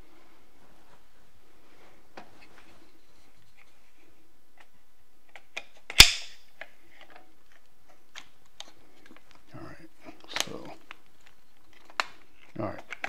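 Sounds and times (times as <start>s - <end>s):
sharp loud snap: 5.9s - 6.4s.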